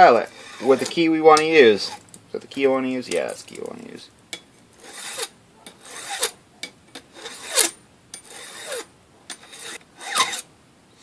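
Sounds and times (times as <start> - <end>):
file rasping on metal: 0.0 - 1.0, 4.8 - 10.5.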